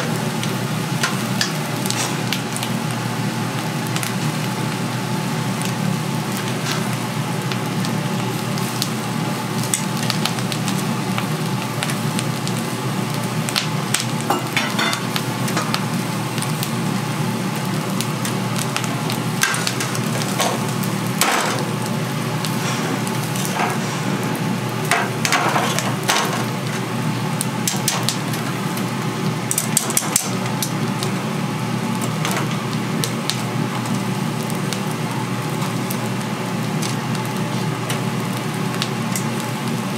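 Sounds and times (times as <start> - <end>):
meat sizzling on a grill: 0.0 - 39.9
sharp crackles and pops: 5.6 - 16.8, 17.4 - 22.5, 24.3 - 31.2, 31.9 - 39.8.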